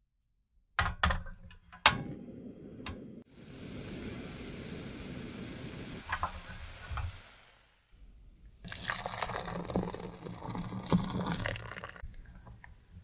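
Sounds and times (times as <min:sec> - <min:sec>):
liquid pouring and splashing: 0:08.6 - 0:12.2
cream simmering in a saucepan: 0:08.6 - 0:12.5.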